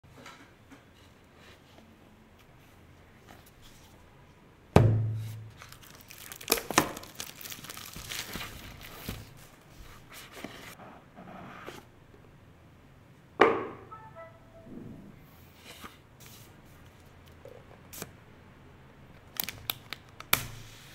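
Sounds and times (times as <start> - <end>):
plastic wrap crinkling and tearing: 5.6 - 9.6, 19.2 - 20.5
short descending tones: 13.7 - 15.2.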